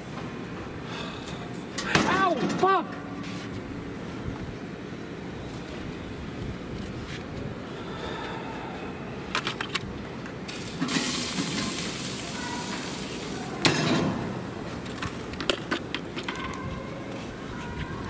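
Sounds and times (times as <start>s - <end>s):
hissing sizzle from hot grill: 10.5s - 14.6s
metal grill lid clanging shut: 13.6s - 14.3s.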